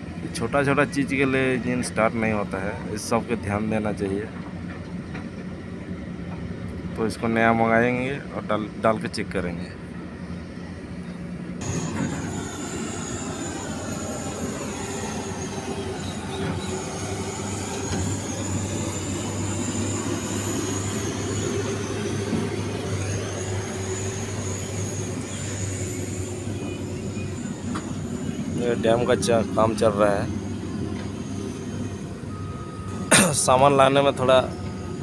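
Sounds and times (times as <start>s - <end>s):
heavy vehicle engine droning: 0.0s - 35.0s
thin high whine: 11.6s - 35.0s.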